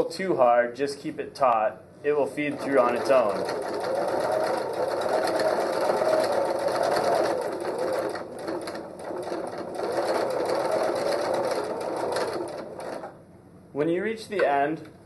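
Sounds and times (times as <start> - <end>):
sewing machine sewing: 2.4 - 13.2.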